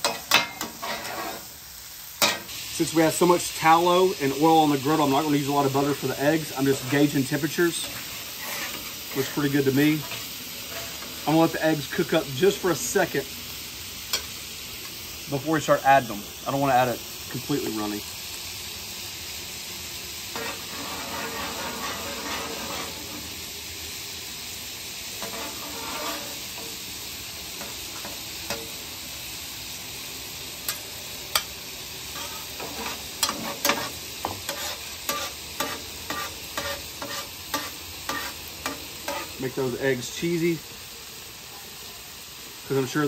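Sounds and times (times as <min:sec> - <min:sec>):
metal spatula scraping griddle: 0:00.0 - 0:01.6, 0:04.4 - 0:13.1, 0:20.3 - 0:23.5, 0:25.0 - 0:28.8, 0:32.1 - 0:39.5
eggs sizzling on a griddle: 0:00.0 - 0:43.0.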